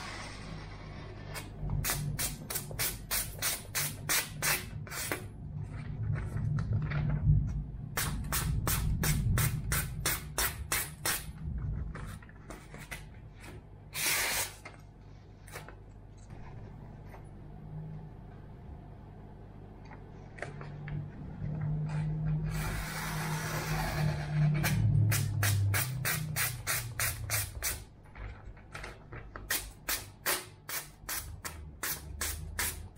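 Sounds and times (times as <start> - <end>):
knife hissing through paper: 13.9 - 14.7.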